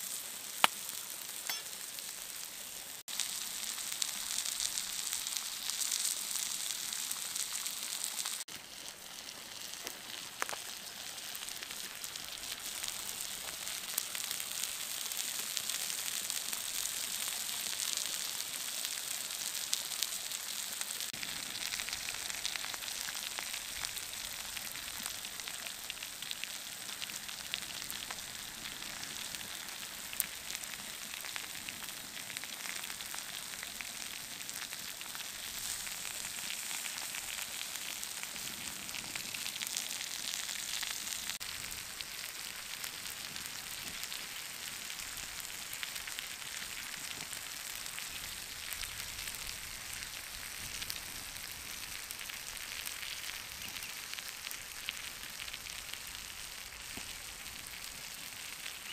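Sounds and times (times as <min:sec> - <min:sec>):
meat sizzling on hot stone: 0:00.0 - 0:58.9
crackling pops: 0:00.1 - 0:02.3, 0:09.6 - 0:14.0, 0:21.1 - 0:44.3, 0:45.2 - 0:58.9.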